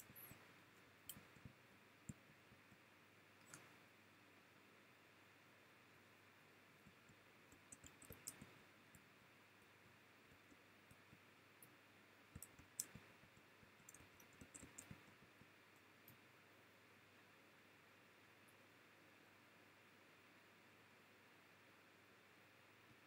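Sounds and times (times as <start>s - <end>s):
computer clicks: 0.0s - 0.4s, 3.4s - 3.7s, 6.8s - 9.0s, 10.4s - 13.1s, 13.8s - 15.2s.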